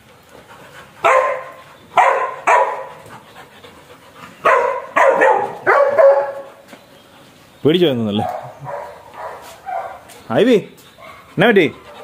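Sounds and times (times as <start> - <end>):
dogs barking: 1.0 - 3.3, 4.4 - 6.7, 8.1 - 10.3, 10.9 - 12.0.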